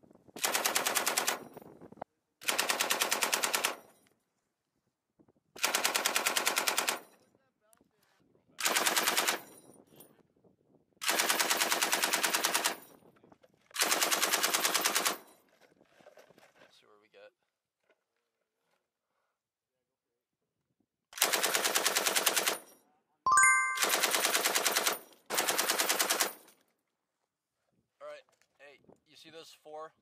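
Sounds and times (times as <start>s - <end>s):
machine gun firing bursts: 0.4s - 1.4s, 2.4s - 3.8s, 5.6s - 7.0s, 8.6s - 9.4s, 11.0s - 12.8s, 13.8s - 15.2s, 21.2s - 22.6s, 23.8s - 26.4s.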